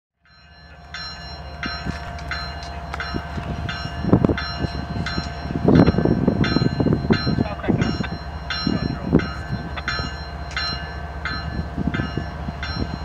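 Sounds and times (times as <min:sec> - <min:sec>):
diesel locomotives rumbling: 0:00.2 - 0:13.0
railroad crossing bell clanging: 0:00.2 - 0:13.0
low thumps: 0:01.0 - 0:13.0.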